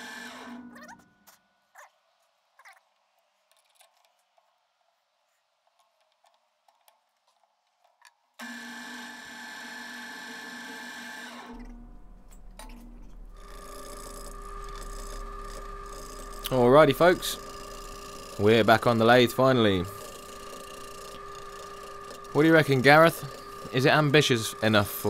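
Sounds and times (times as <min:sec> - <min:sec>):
drill press motor whine: 0:00.0 - 0:00.8, 0:08.4 - 0:25.0
wood lathe motor humming: 0:08.4 - 0:25.0.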